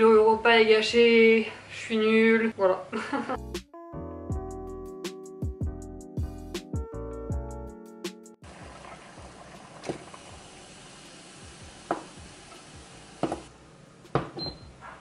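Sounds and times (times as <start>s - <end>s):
boiling water hissing: 8.4s - 14.0s.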